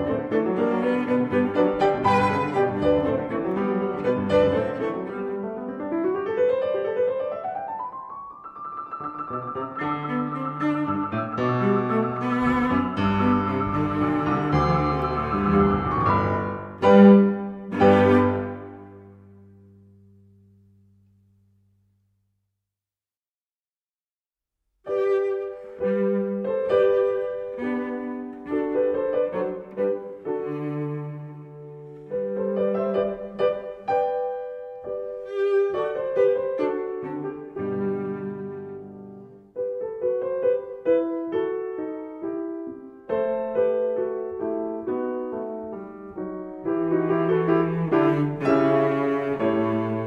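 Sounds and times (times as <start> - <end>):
low bowed string: 0.0 - 5.4, 9.3 - 19.4, 46.5 - 50.0
bowed strings: 0.0 - 6.0, 8.6 - 20.9, 24.9 - 39.8, 43.4 - 50.0
piano: 0.0 - 22.1, 24.8 - 50.0.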